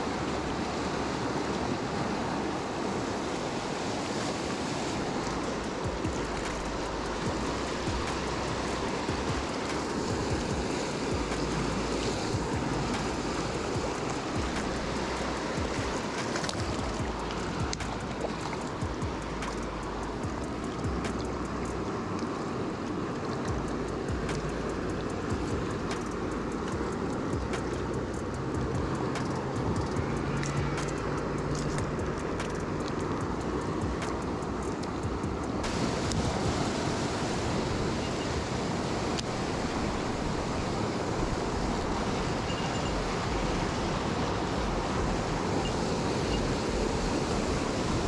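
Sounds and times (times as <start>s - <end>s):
river water rushing: 0.0s - 48.0s
light quick ticks: 16.2s - 18.8s, 19.4s - 22.4s, 23.4s - 36.2s.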